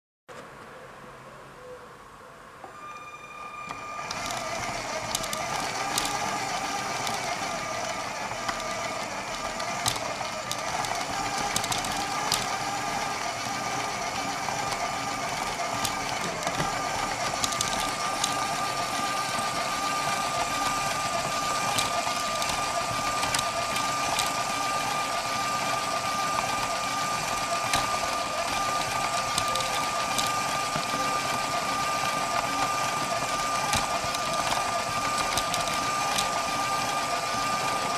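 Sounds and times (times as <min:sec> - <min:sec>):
electric motor whine: 0:02.6 - 0:37.9
light plastic clicks: 0:08.4 - 0:13.8, 0:20.0 - 0:24.5.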